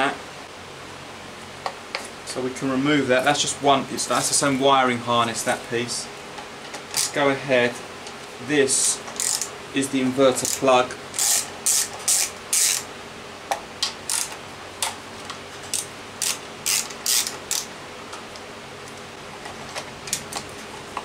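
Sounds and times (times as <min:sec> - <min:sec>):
ratchet wrench clicking: 0:09.2 - 0:09.5, 0:10.4 - 0:12.8, 0:14.1 - 0:14.4, 0:15.7 - 0:17.7.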